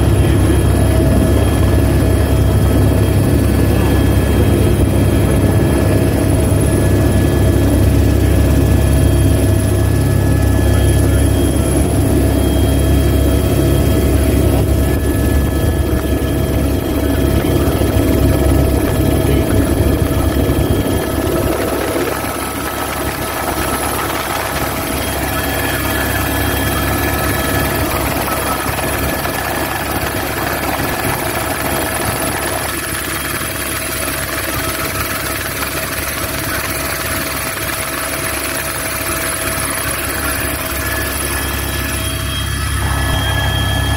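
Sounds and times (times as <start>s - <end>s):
helicopter rotor rumble: 0.0s - 43.9s
helicopter turbine whine: 0.0s - 43.9s.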